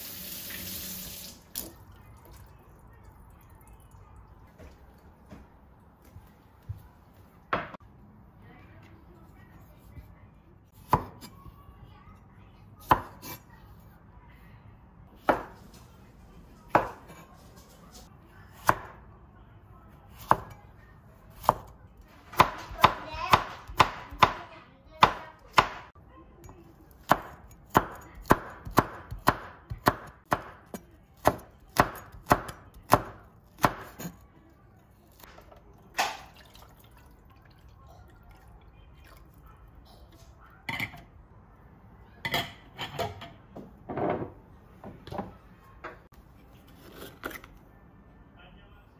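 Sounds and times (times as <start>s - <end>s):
knife chopping on cutting board: 27.0s - 34.2s.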